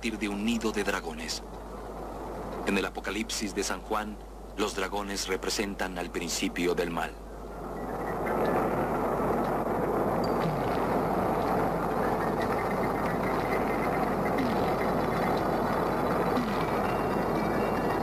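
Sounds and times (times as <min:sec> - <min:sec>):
dense roaring rumble: 0:07.4 - 0:18.0.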